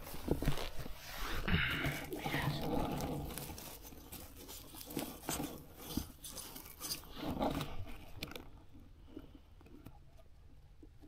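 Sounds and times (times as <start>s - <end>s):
crunching of pine needles and soil: 0.0s - 8.6s.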